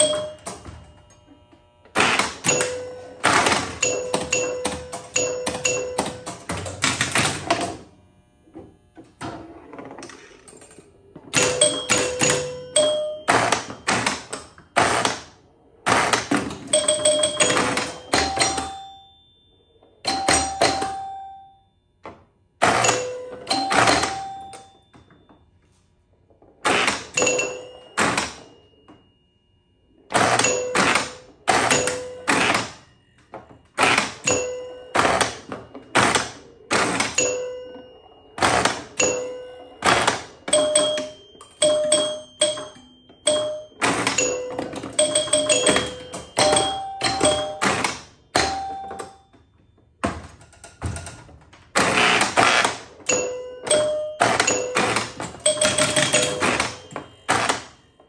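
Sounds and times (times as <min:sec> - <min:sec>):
pinball machine clacking: 0:00.0 - 0:58.0
chime bells ringing: 0:34.2 - 0:49.5.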